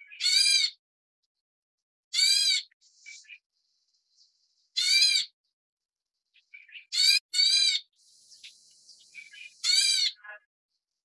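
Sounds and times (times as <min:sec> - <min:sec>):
bird harsh calls: 0:02.1 - 0:05.4, 0:06.4 - 0:10.4
soft bird chirps: 0:02.6 - 0:11.0.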